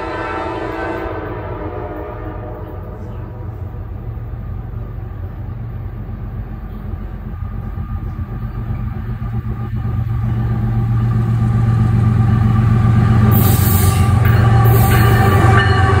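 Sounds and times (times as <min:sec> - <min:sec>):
locomotive air horn chord: 0:00.0 - 0:03.8, 0:13.3 - 0:16.0
diesel locomotive engines running: 0:00.0 - 0:16.0.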